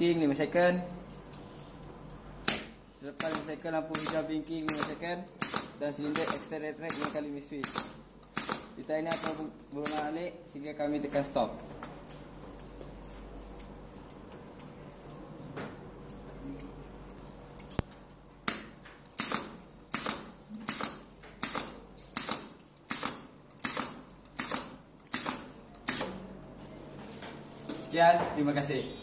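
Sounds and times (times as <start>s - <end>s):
faint regular ticking: 0.1s - 15.4s, 16.0s - 20.0s.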